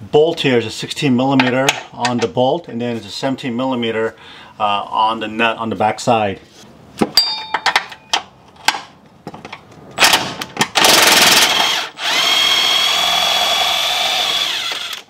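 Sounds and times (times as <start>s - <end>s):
impact wrench whining: 10.0s - 15.0s.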